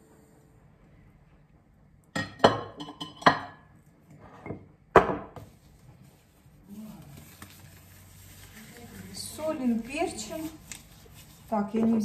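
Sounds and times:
jars and dishes clinking: 0:02.2 - 0:03.7.

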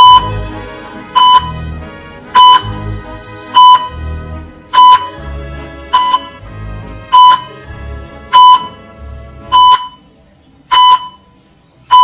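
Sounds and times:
short electronic beeps: 0:00.0 - 0:00.3, 0:01.2 - 0:01.5, 0:02.4 - 0:02.7, 0:03.6 - 0:03.9, 0:04.8 - 0:05.1, 0:06.0 - 0:06.4, 0:07.2 - 0:07.5, 0:08.4 - 0:08.8, 0:09.5 - 0:10.0, 0:10.7 - 0:11.2
low background music: 0:00.0 - 0:11.0.

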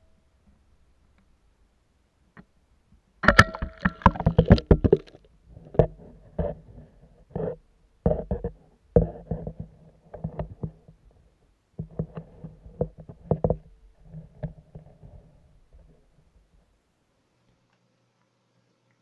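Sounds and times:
underwater camera knocks and bumps: 0:03.2 - 0:06.7, 0:07.3 - 0:11.0, 0:11.8 - 0:15.1.

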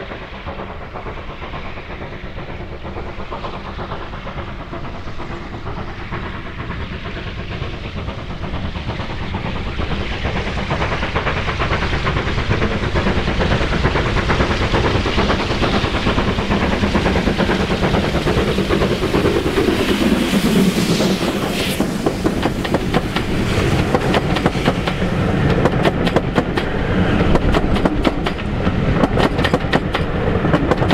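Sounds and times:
steam locomotive chuffing: 0:00.0 - 0:30.9
train wheels rumbling and clattering: 0:00.0 - 0:30.9.

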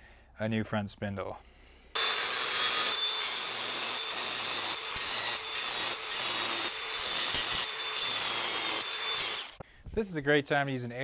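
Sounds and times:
angle grinder cutting steel: 0:02.0 - 0:09.6.

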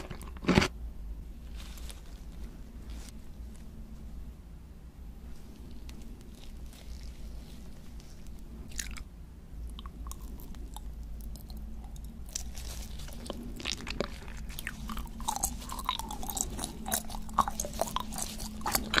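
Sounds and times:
chewing with crackly mouth clicks: 0:09.7 - 0:19.0.

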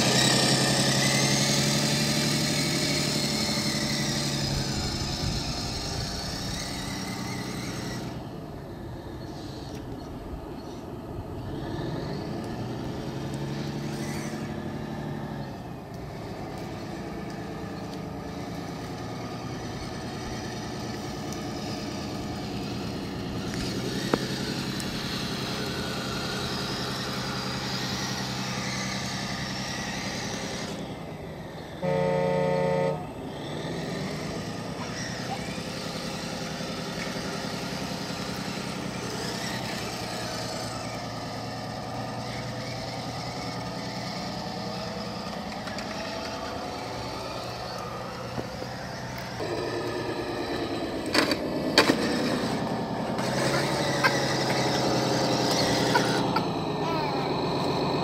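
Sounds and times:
simulated engine sound: 0:00.0 - 0:58.0
horn blast: 0:31.8 - 0:33.2.

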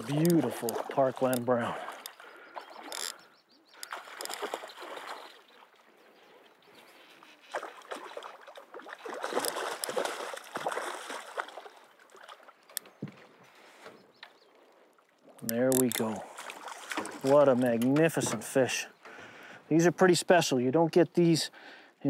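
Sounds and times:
fish splashing in water: 0:03.8 - 0:05.8, 0:07.4 - 0:12.7, 0:16.2 - 0:17.4.

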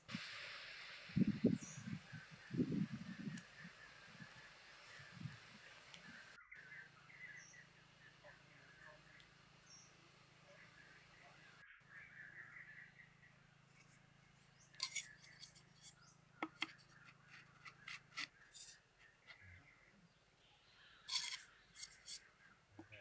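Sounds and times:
bamboo clicking and knocking: 0:14.7 - 0:19.4.

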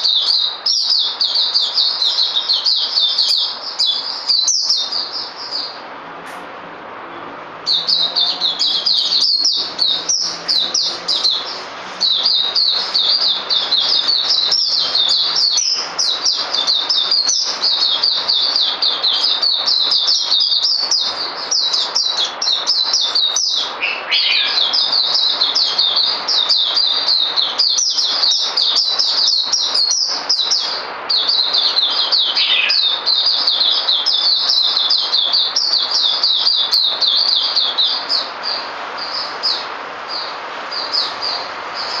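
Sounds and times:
bird twittering song: 0:00.0 - 0:06.4, 0:07.2 - 0:42.0.

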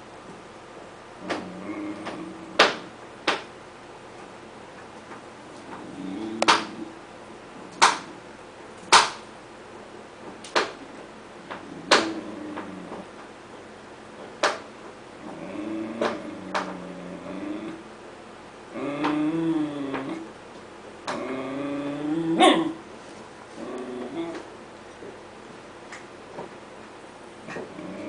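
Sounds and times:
puppy growling: 0:01.2 - 0:02.9, 0:05.6 - 0:07.0, 0:11.5 - 0:13.2, 0:15.2 - 0:17.9, 0:18.7 - 0:20.4, 0:21.1 - 0:22.9, 0:23.5 - 0:24.5, 0:27.4 - 0:28.0.

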